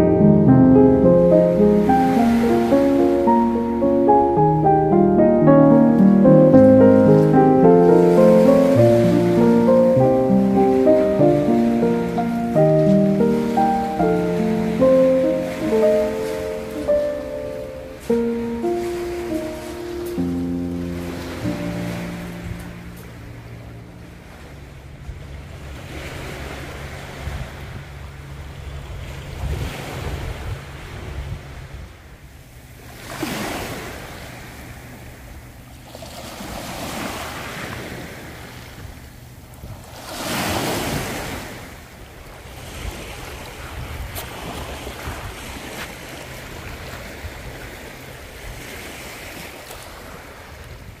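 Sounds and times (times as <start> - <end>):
wind rumble on microphone: 22.3 - 35.5, 37.0 - 51.0.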